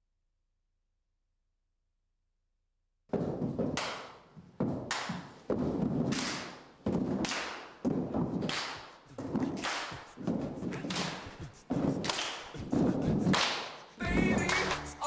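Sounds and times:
feet stomping: 3.1s - 15.0s
people clapping in rhythm: 3.7s - 15.0s.

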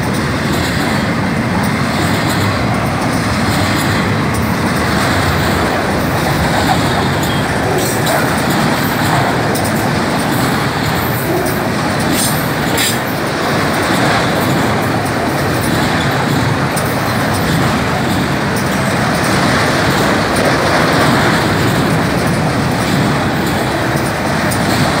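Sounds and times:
train wheels rumbling on rails: 0.0s - 25.0s.

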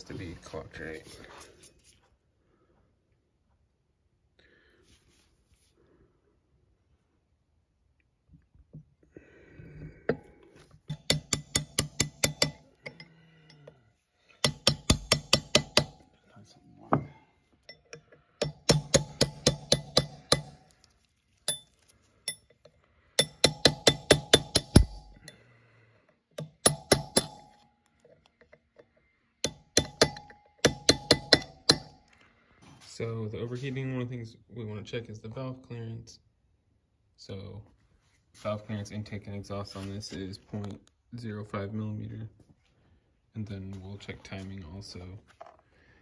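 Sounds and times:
hammer tapping a chisel: 10.9s - 13.7s, 14.4s - 16.1s, 16.9s - 20.6s, 21.4s - 25.4s, 26.3s - 32.1s
ringing metal taps: 10.9s - 13.8s, 14.4s - 16.1s, 16.9s - 20.6s, 21.5s - 25.4s, 26.3s - 32.0s.

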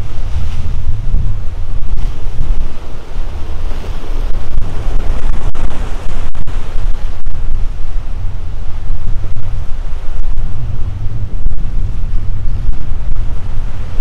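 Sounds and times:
surf breaking over rocks: 0.0s - 14.0s
wind buffeting microphone: 0.0s - 14.0s.

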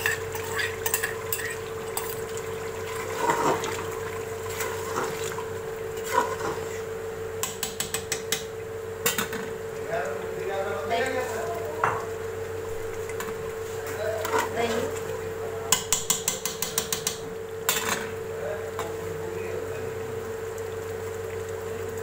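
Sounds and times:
metal spoon clinking and scraping pot: 0.0s - 2.2s.

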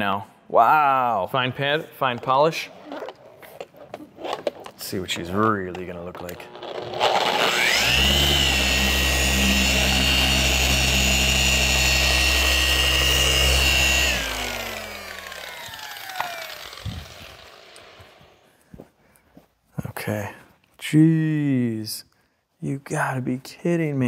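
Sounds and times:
car polisher running: 6.5s - 18.4s.

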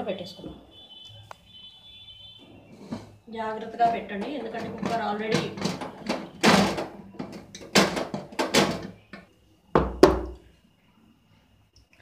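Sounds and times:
metal kitchenware clattering: 2.4s - 9.2s
metal pot lid clanking: 3.0s - 8.9s
steel bowl knocking: 3.8s - 8.7s.

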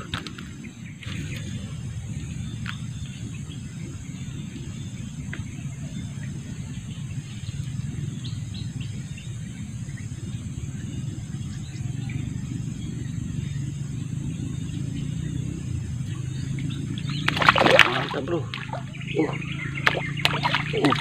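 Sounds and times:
bird chirps: 0.0s - 21.0s
high insect drone: 0.0s - 21.0s
low rumble: 0.0s - 21.0s
fish splashing at water surface: 17.3s - 18.9s, 19.8s - 21.0s.

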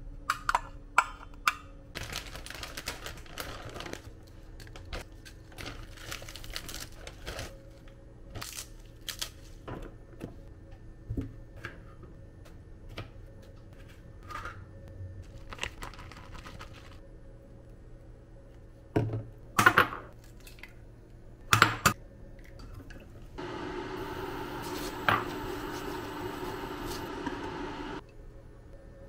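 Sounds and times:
plastic bag crinkling: 2.0s - 7.8s, 15.4s - 17.0s
crinkly pouch rustling: 2.0s - 9.5s, 15.3s - 17.0s
faint steady hum: 22.0s - 29.0s.

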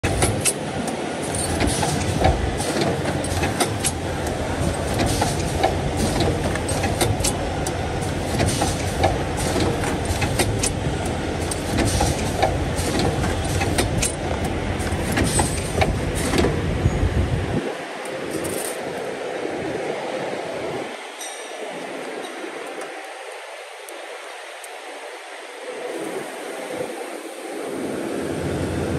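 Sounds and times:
sharp clicks and clacks of tooling: 0.0s - 16.6s
machine mechanical rumble: 0.0s - 19.4s.

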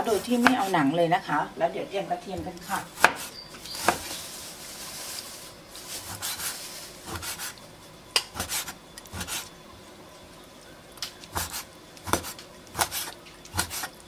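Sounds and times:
cleaver chopping on wooden board: 3.0s - 4.1s, 12.1s - 13.0s.

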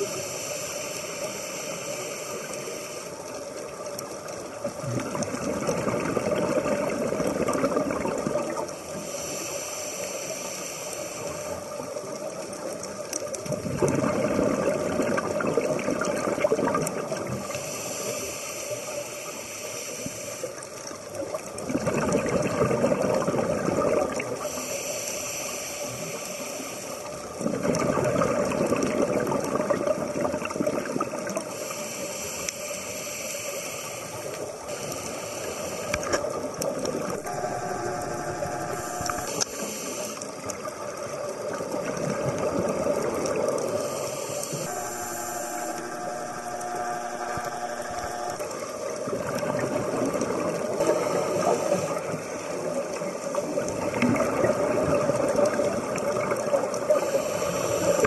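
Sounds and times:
diver breathing through regulator: 0.0s - 3.3s, 8.7s - 11.8s, 17.4s - 20.7s, 24.4s - 27.8s, 30.9s - 36.4s, 37.0s - 40.7s, 42.6s - 53.4s, 56.9s - 58.0s
exhaled bubbles rushing: 4.6s - 8.8s, 13.4s - 17.5s, 21.4s - 24.4s, 27.2s - 31.5s, 36.0s - 58.0s.

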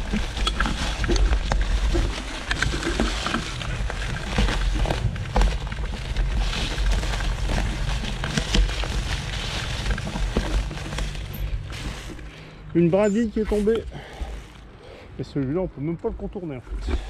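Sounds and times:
wind rumble on microphone: 0.0s - 11.9s
bike rattling: 0.0s - 15.0s
tyres crackling over twigs: 0.0s - 17.0s.

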